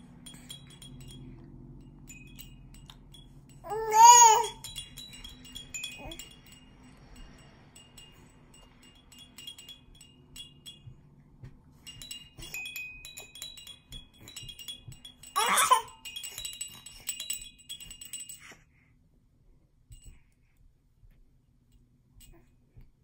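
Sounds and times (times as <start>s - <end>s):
rattle toy bells tinkling: 0.0s - 18.8s
baby squealing: 3.7s - 4.6s, 15.4s - 15.9s.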